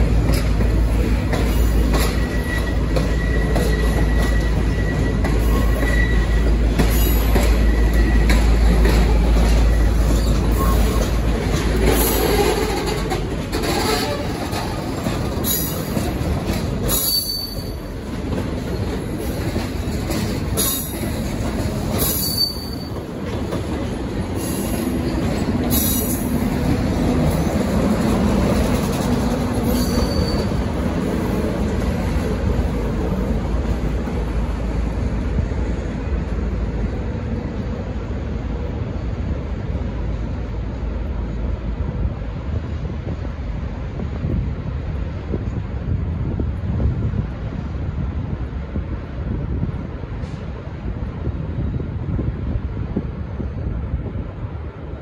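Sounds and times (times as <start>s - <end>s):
wheels clacking over rail joints: 0.0s - 35.0s
train carriages rolling past: 0.0s - 55.0s
train wheels squealing: 0.3s - 18.0s, 18.7s - 26.6s, 28.6s - 31.4s.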